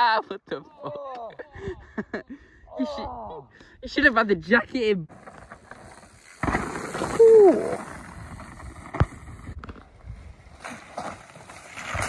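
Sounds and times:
mountain bike on muddy trail: 5.1s - 12.0s
person whooping: 7.2s - 7.8s.

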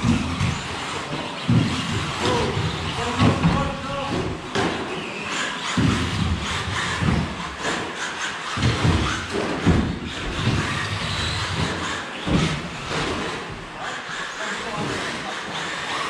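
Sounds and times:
electric rc cars running: 0.0s - 16.0s
noisy background: 0.0s - 16.0s.

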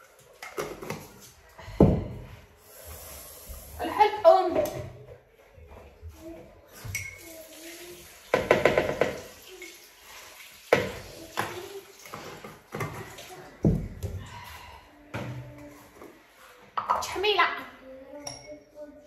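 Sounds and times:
dishes and utensils clattering: 0.0s - 2.2s, 6.7s - 9.9s, 10.7s - 14.2s, 18.2s - 18.8s.

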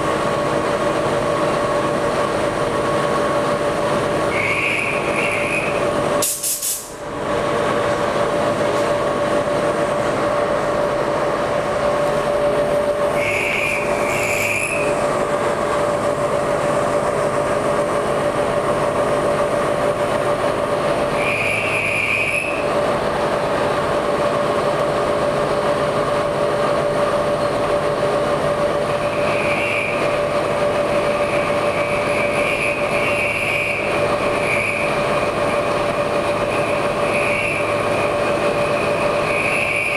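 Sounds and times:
compressed air hiss: 6.2s - 7.0s.

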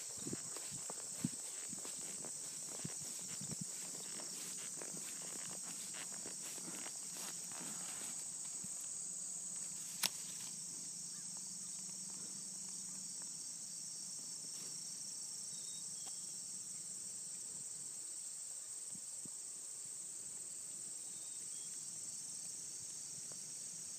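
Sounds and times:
insects chirring in grass: 0.0s - 23.9s
sharp click: 10.0s - 10.2s.

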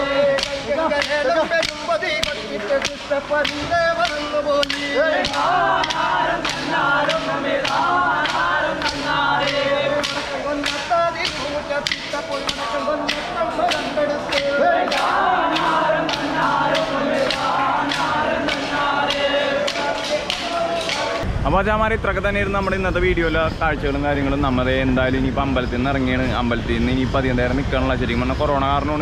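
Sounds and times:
hand claps: 0.0s - 21.2s
men singing in chorus: 0.0s - 21.2s.

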